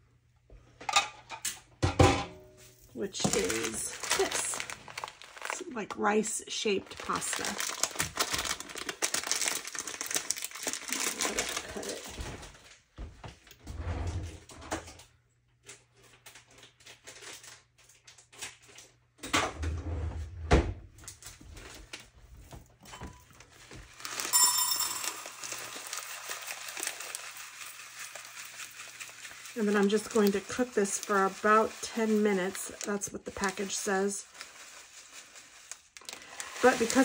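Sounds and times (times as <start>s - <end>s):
plastic bag crinkling: 2.7s - 12.8s, 16.0s - 18.9s, 23.3s - 37.0s
short ringing tone: 24.3s - 25.5s.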